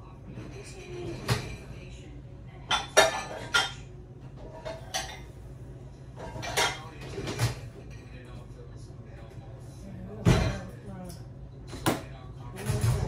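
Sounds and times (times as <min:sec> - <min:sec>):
dishes and cutlery clinking: 0:00.3 - 0:01.9, 0:02.6 - 0:05.4, 0:06.1 - 0:08.4, 0:10.2 - 0:13.0.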